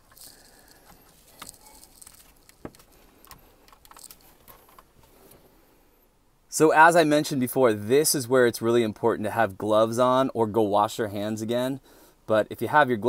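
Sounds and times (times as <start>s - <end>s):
plug clicks and rustling: 0.1s - 5.4s.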